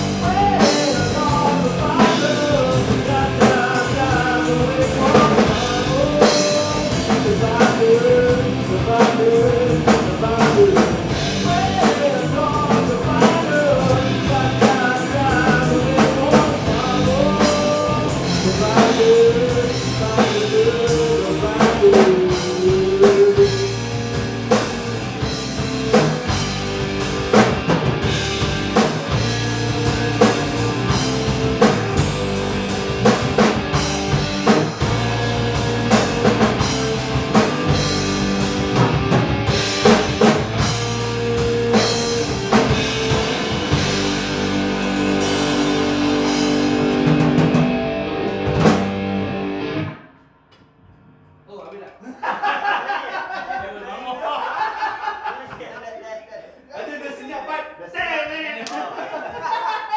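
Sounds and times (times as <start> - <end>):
person singing: 0.0 - 24.0
rock band playing: 0.0 - 50.2
drum hits: 21.5 - 49.2.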